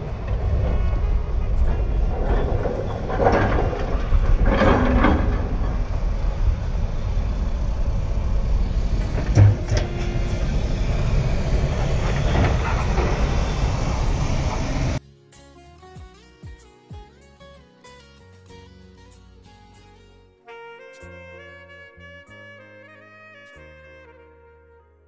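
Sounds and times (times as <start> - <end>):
car road and wind rumble: 0.0 - 15.0.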